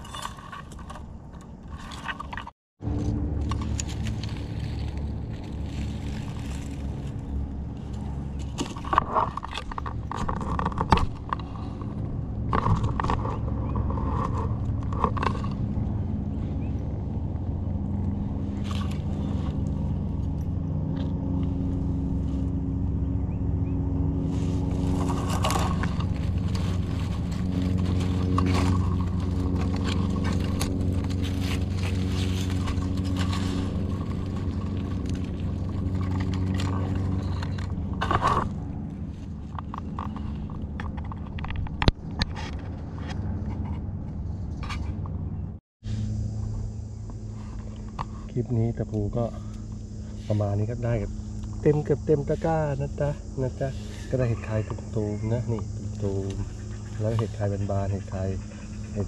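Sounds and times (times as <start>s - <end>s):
low mechanical hum: 0.0s - 59.0s
hands rustling through dry leaves: 2.8s - 8.8s, 23.9s - 40.4s
twig snapping: 24.8s - 38.5s.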